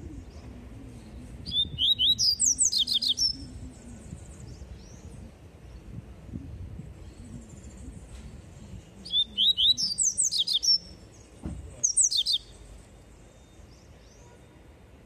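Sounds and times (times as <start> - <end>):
bird singing high whistled notes: 1.4 - 3.8, 9.0 - 10.9, 11.8 - 12.6
soft thump: 11.4 - 11.7.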